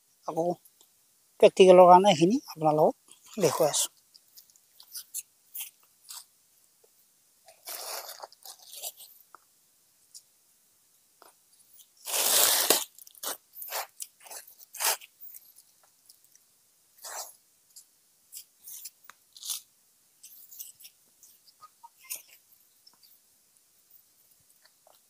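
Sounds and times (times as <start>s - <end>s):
crunching and rustling handling: 11.2s - 16.4s.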